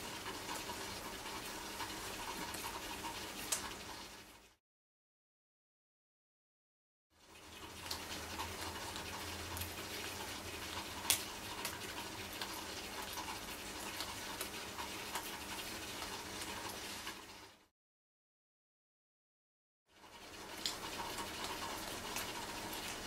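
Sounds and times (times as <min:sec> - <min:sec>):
small clicks and ticks: 0:00.2 - 0:04.1, 0:07.4 - 0:17.2, 0:20.0 - 0:23.0.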